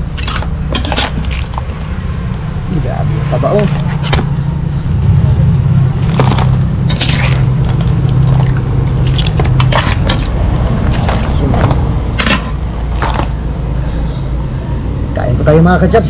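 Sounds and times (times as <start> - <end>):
steady low hum: 0.0 - 15.6
metal utensils clinking on a wok: 6.8 - 8.4, 12.2 - 12.6.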